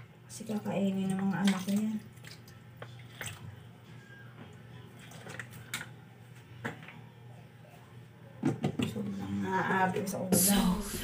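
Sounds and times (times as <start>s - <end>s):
water dripping: 0.4s - 3.5s.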